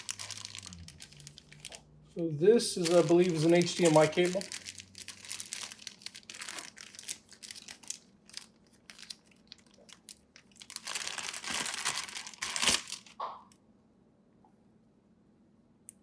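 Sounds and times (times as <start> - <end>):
plastic bag crinkling: 0.0 - 1.9, 2.6 - 13.2.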